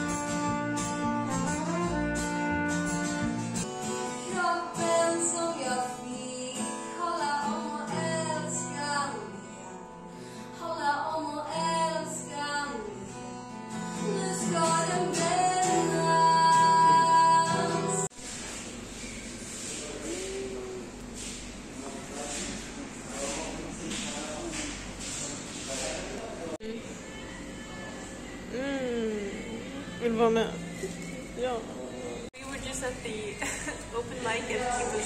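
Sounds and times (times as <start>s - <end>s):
acoustic guitar strumming: 0.0s - 10.2s, 11.2s - 18.1s
woman singing: 4.1s - 9.7s, 10.5s - 13.1s, 13.8s - 18.1s, 26.7s - 31.2s.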